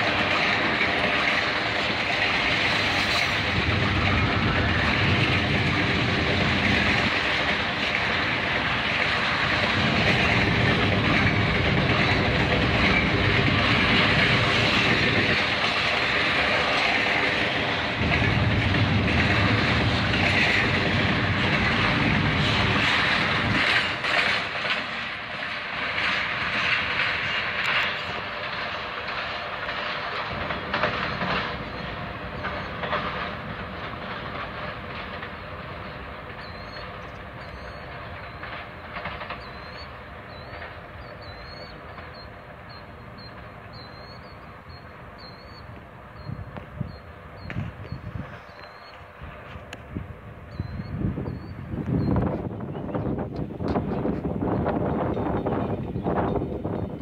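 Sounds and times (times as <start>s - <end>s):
wheel clicks over rail joints: 0.0s - 43.5s
freight train rumbling past: 0.0s - 57.0s.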